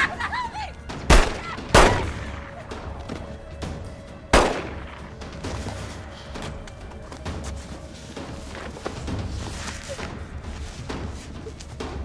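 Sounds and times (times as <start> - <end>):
pistol shot: 1.1 - 2.3, 4.3 - 5.0.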